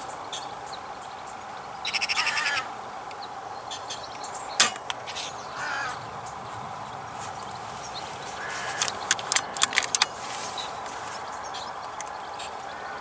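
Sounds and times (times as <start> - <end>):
magpie rattling chatter: 1.8 - 2.7, 7.4 - 13.0.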